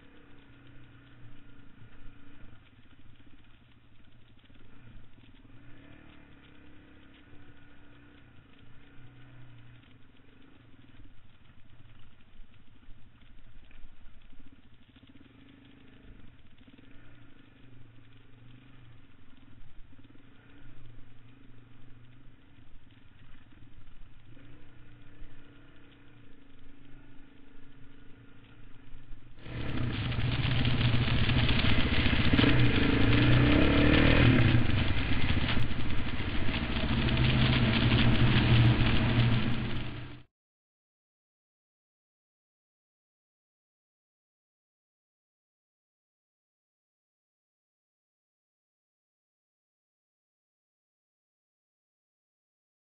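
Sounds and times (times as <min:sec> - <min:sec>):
dirt bike engine running: 0:00.0 - 0:40.3
motorcycle engine idling and revving: 0:00.0 - 0:40.3.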